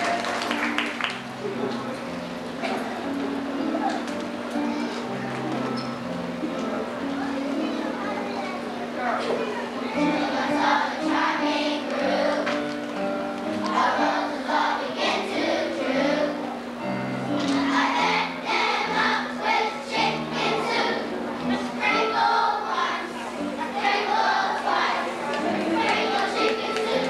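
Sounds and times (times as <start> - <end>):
children's choir singing: 9.7 - 12.8, 13.5 - 27.0.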